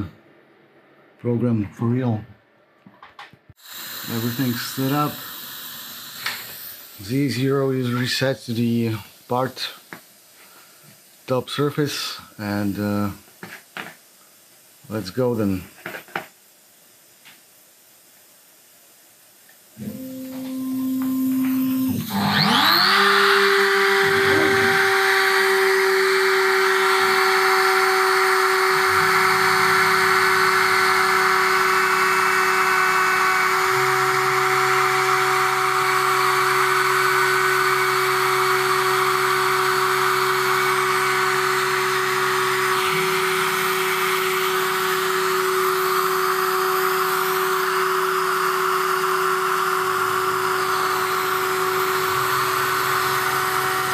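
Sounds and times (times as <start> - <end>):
router spindle high whine: 3.6 - 9.5, 19.8 - 53.9
low motor tones changing pitch: 19.8 - 53.9.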